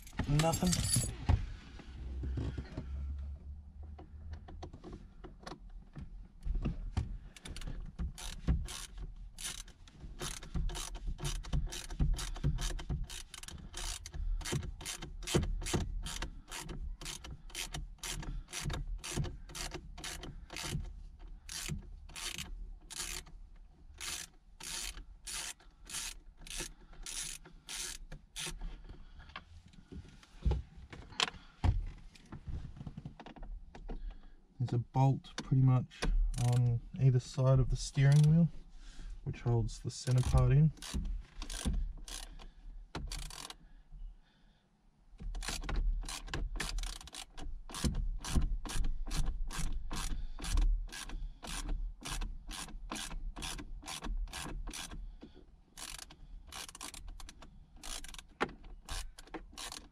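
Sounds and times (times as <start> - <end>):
ratchet handle clicking: 7.4 - 20.9, 21.5 - 23.3, 24.0 - 28.6, 38.1 - 38.3, 40.2 - 43.6, 45.4 - 55.0, 55.8 - 59.9.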